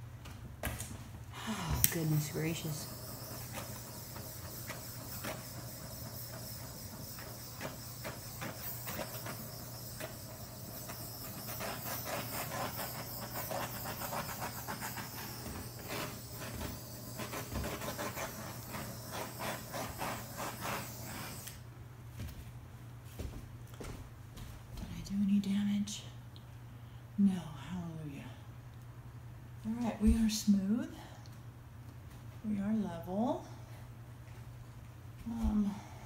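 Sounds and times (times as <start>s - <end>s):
torch flame hissing: 1.4s - 21.7s.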